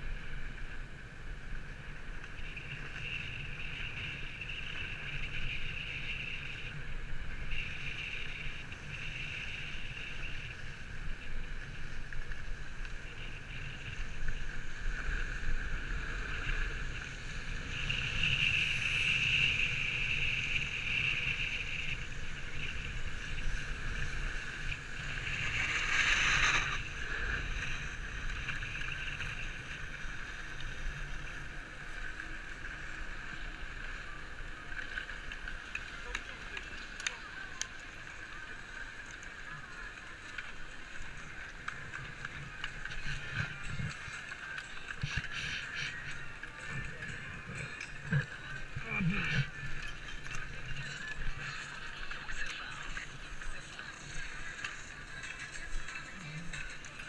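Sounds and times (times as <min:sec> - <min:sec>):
snowboard scraping on snow: 0:13.8 - 0:30.5.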